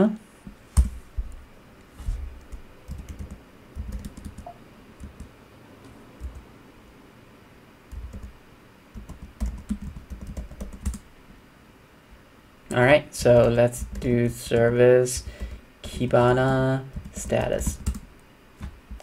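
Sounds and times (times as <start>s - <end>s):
computer keyboard typing: 2.4s - 5.3s, 6.2s - 6.4s, 7.9s - 11.0s, 13.2s - 15.6s, 16.4s - 18.0s.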